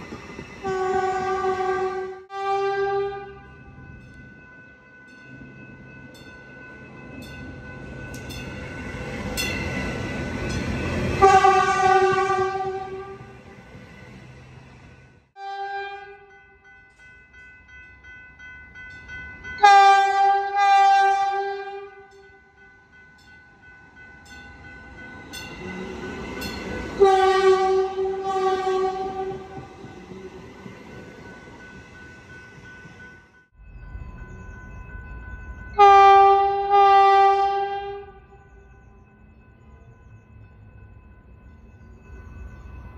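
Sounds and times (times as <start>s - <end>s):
train running noise: 0.0s - 42.9s
train horn blasts: 0.6s - 3.4s, 11.2s - 13.4s, 15.4s - 16.3s, 19.6s - 22.2s, 27.0s - 29.7s, 35.8s - 38.4s.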